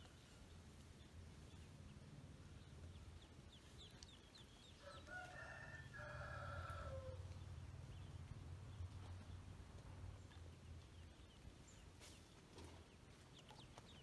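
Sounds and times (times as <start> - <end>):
rooster crowing: 4.8 - 7.2.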